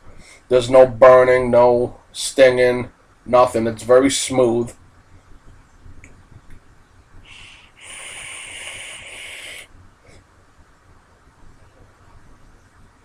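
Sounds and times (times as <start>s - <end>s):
vape hissing draw: 7.3s - 9.7s.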